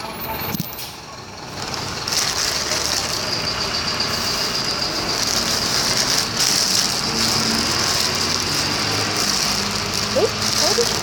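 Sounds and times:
bus engine pulling away: 0:00.0 - 0:11.0
street traffic: 0:00.0 - 0:11.0.

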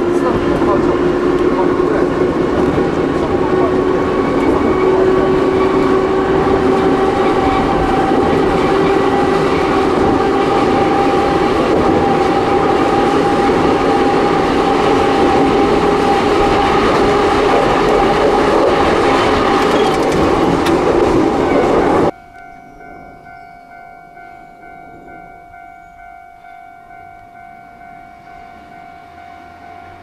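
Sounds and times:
train wheels rumbling on track: 0:00.0 - 0:23.5.

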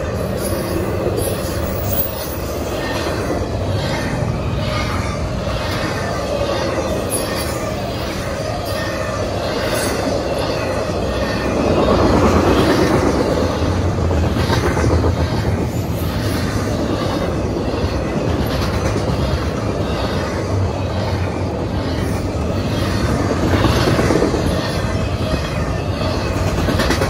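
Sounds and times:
freight train rolling on rails: 0:00.0 - 0:27.0
train wheels clacking: 0:00.0 - 0:27.0.

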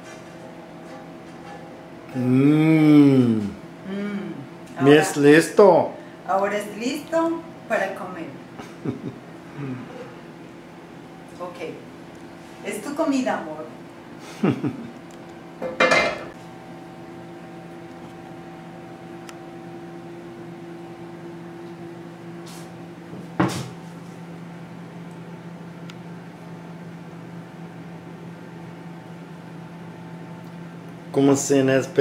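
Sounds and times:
faint steady hum: 0:00.0 - 0:23.1.

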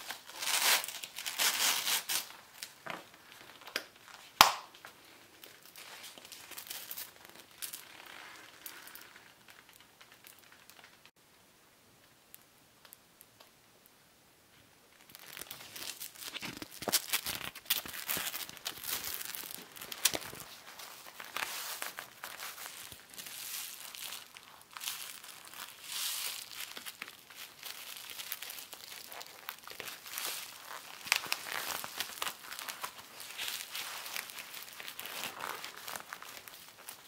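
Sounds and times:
leather rustling and crinkling: 0:04.9 - 0:10.7, 0:15.0 - 0:37.0
sharp crackles: 0:05.6 - 0:11.1, 0:14.9 - 0:37.0.

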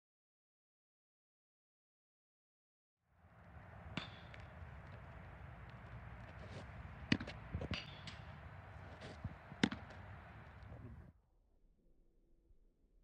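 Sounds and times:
outdoor background noise: 0:03.1 - 0:11.1
sharp knocks: 0:03.4 - 0:11.0.

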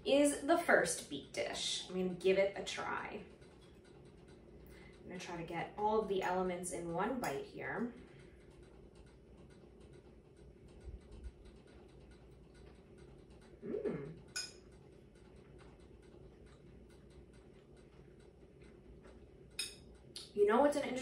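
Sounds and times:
faint steady hum: 0:00.0 - 0:21.0
woman eating: 0:12.5 - 0:19.3
woman tasting mm: 0:13.6 - 0:14.3.

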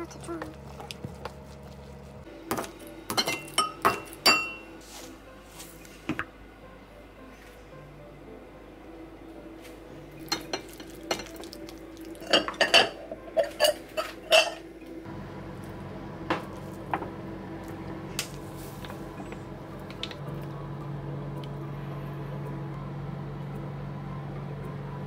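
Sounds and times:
cutlery clinking against dishes: 0:10.3 - 0:11.6, 0:12.2 - 0:14.6.

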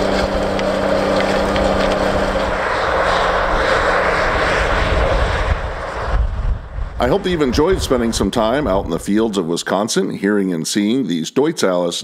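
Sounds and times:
tractor diesel engine under load: 0:00.0 - 0:04.1
broad rushing noise: 0:00.0 - 0:09.4.

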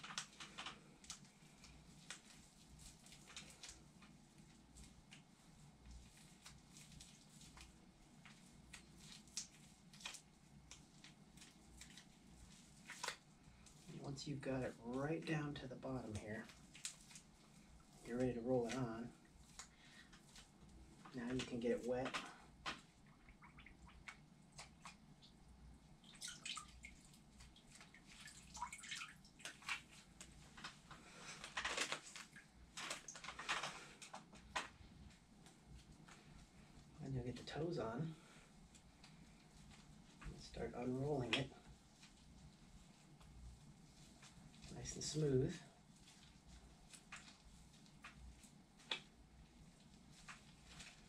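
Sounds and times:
gloved hands rustling fabric: 0:00.0 - 0:51.0
water sloshing in plastic tub: 0:26.0 - 0:34.8.

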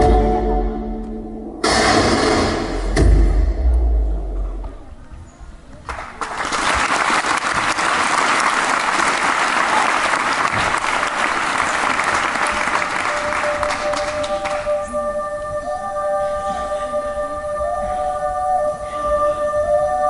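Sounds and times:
music: 0:00.0 - 0:04.8, 0:12.4 - 0:20.0
audience clapping: 0:05.8 - 0:14.9.

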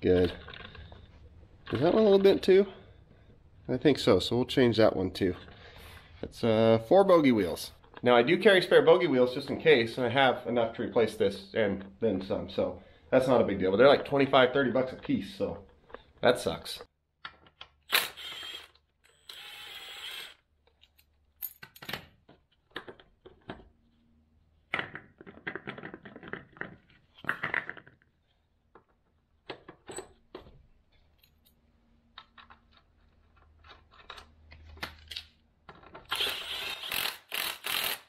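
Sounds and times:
cordless impact wrench running: 0:17.9 - 0:20.4, 0:36.1 - 0:38.0.

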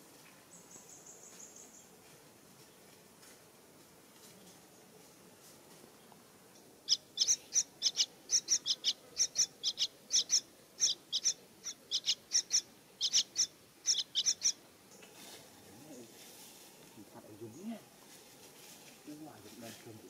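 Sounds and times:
parakeet calling: 0:06.9 - 0:14.6.

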